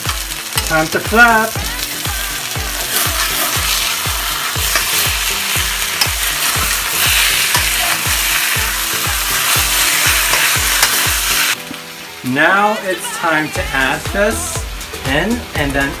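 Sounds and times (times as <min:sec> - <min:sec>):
chicken sizzling in a wok: 0:00.0 - 0:16.0
spatula scraping a wok: 0:02.8 - 0:11.6.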